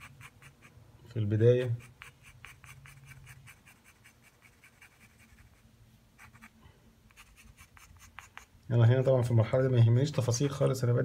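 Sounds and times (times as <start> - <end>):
pencil shading on paper: 0.0 - 0.7, 1.6 - 5.6, 7.1 - 8.5.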